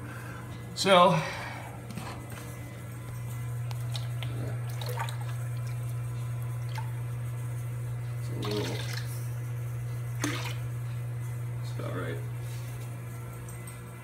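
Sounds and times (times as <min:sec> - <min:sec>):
steady low hum: 0:00.0 - 0:14.0
water splashing and sloshing: 0:03.8 - 0:07.0, 0:08.4 - 0:09.2, 0:10.2 - 0:10.7.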